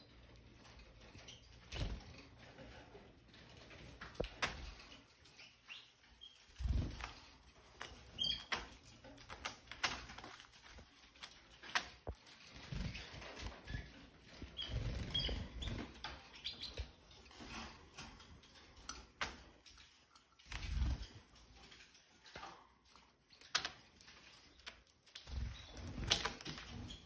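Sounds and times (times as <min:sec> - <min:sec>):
birds chirping: 0:00.0 - 0:09.6, 0:10.3 - 0:20.0, 0:20.6 - 0:27.0.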